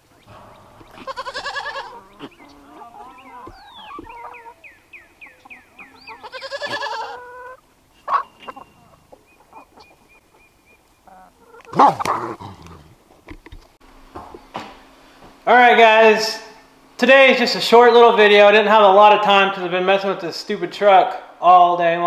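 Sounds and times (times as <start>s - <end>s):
bird singing falling notes: 0.0s - 6.6s
pitched animal call: 0.0s - 10.0s
sudden loud animal cry: 0.3s - 4.6s, 5.8s - 8.2s.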